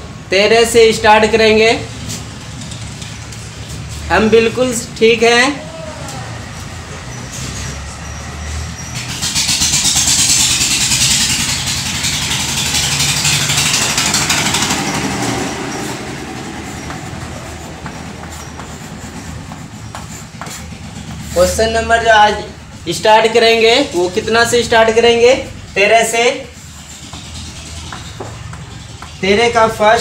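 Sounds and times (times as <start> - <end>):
loud rushing noise: 8.6 - 23.2
chalk scratching on blackboard: 15.7 - 21.7
chalk clicks: 15.8 - 21.4.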